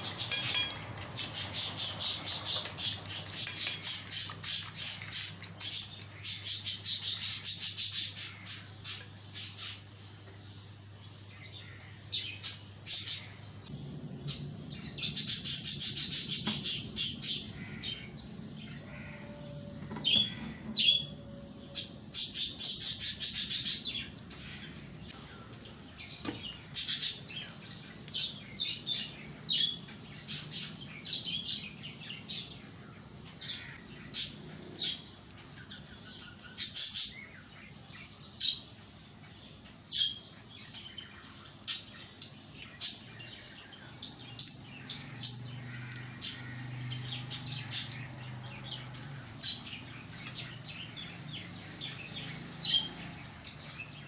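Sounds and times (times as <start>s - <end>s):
fork beating eggs in glass bowl: 0.0s - 6.2s.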